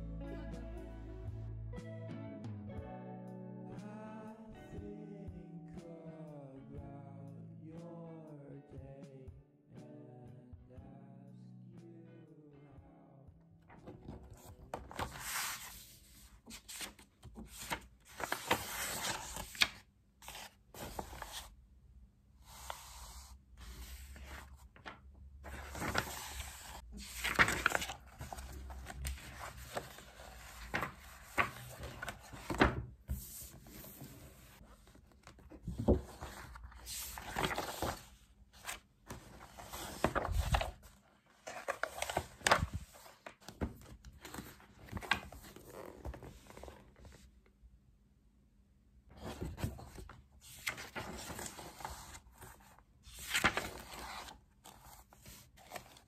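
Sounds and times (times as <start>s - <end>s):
pages turning: 13.8s - 21.6s, 22.4s - 47.2s, 49.2s - 56.0s.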